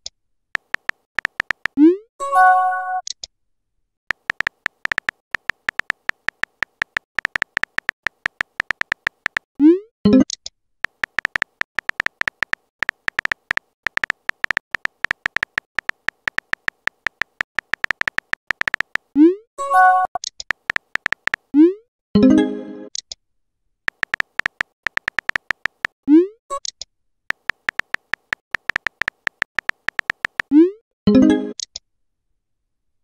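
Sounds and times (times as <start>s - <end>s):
phone keyboard typing clicks: 0.6s - 1.8s, 4.1s - 9.5s, 10.2s - 19.1s, 20.4s - 21.5s, 23.9s - 26.0s, 26.6s - 30.5s.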